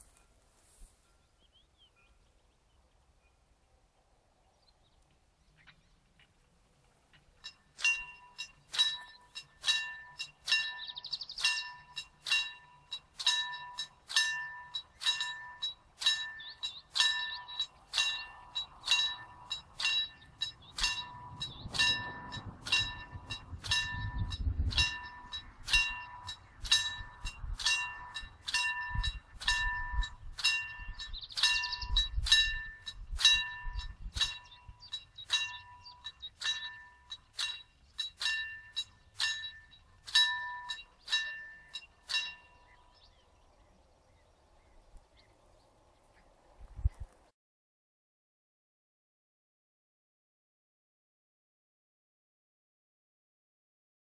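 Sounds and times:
level crossing warning bell: 7.4s - 43.3s.

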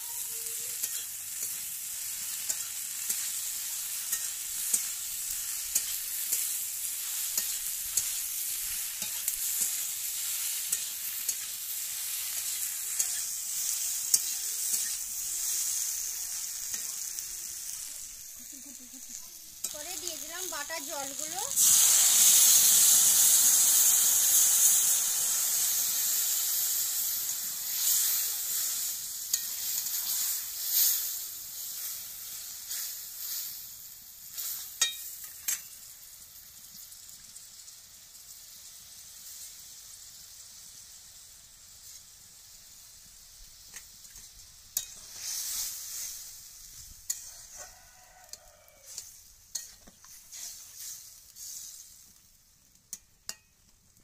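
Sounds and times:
water sizzling in hot pan: 0.0s - 54.0s
spatula stirring curry: 0.7s - 17.8s, 43.7s - 52.0s
spatula tapping pan: 34.8s - 35.7s, 52.9s - 53.5s.

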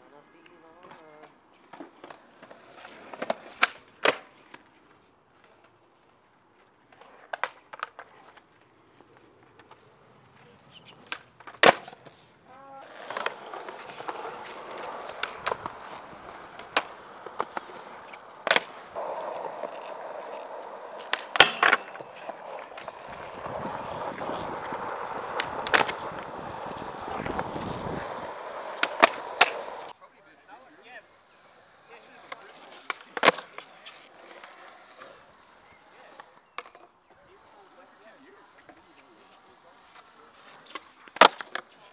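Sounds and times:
skateboard wheels rolling on concrete: 0.0s - 41.9s
skateboard clacks and impacts: 11.0s - 12.1s, 12.8s - 29.9s.

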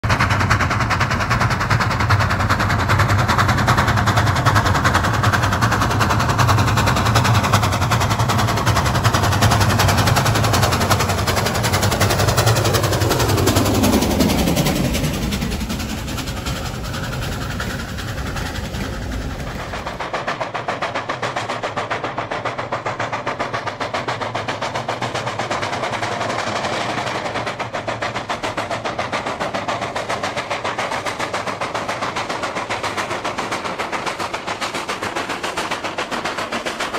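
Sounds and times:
steam locomotive chuffing: 0.0s - 36.9s.

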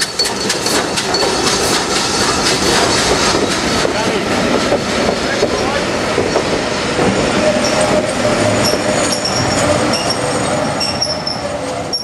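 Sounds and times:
train wheels clattering on rails: 0.0s - 12.0s
high-pitched wheel squeal: 7.5s - 12.0s.

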